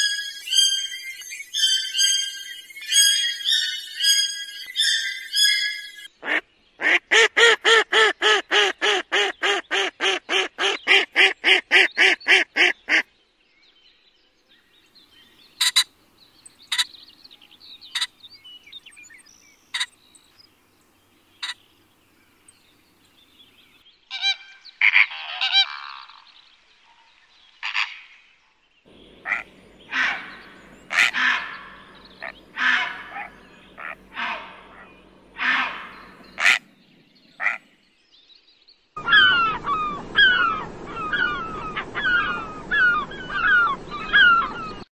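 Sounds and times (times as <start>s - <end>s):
heron calls: 15.5s - 15.9s, 16.6s - 17.0s, 17.8s - 18.2s, 19.7s - 20.0s, 21.2s - 21.7s, 28.9s - 37.7s
duck calls: 15.6s - 15.9s, 16.7s - 16.9s, 17.9s - 18.1s, 19.7s - 19.9s, 21.4s - 21.6s, 28.9s - 36.7s, 37.4s - 37.6s
gull calls: 15.6s - 15.9s, 17.9s - 18.1s, 28.9s - 36.7s, 37.4s - 37.6s, 39.0s - 44.9s.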